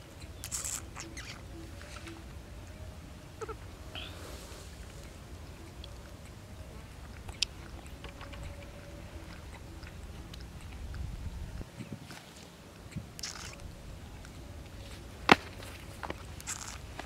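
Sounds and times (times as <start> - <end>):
low steady rumble: 0.0 - 17.0
baby monkey sucking bottle: 0.3 - 1.4, 12.9 - 13.6, 16.4 - 16.9.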